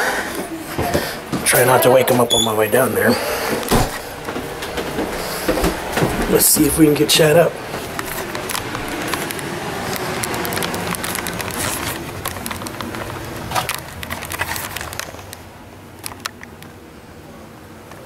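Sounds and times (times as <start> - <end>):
footsteps on wooden stairs: 0.4 - 2.4, 3.0 - 13.9
camera rustling: 7.6 - 16.6.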